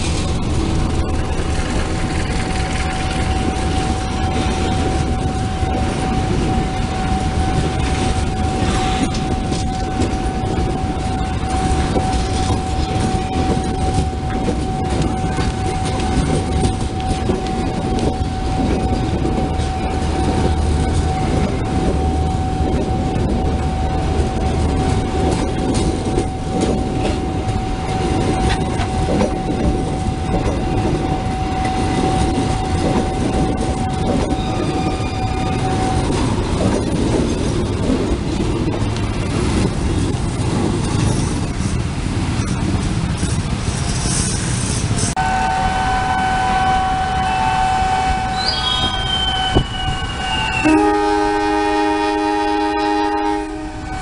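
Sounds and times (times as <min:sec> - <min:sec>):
steady high whine: 0:00.0 - 0:36.5
train wheels clacking: 0:00.0 - 0:45.2
train coaches rumbling: 0:00.0 - 0:54.0.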